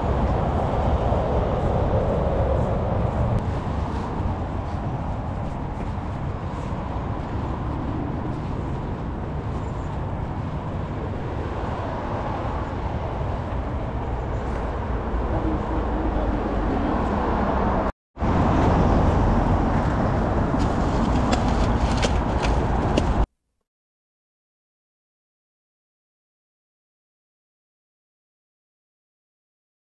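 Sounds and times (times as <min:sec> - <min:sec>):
road traffic noise: 0:00.0 - 0:23.3.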